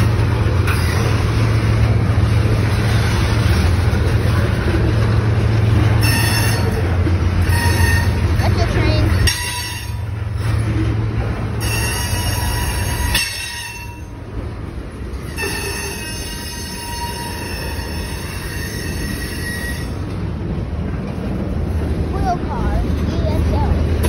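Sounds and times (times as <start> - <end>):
freight train rumbling past: 0.0 - 24.0
train wheels squealing: 6.0 - 6.8, 7.4 - 8.2, 11.6 - 14.1, 15.2 - 20.0.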